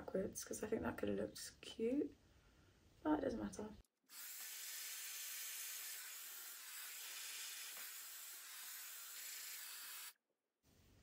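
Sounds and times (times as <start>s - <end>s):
hair dryer blowing: 4.2s - 10.1s.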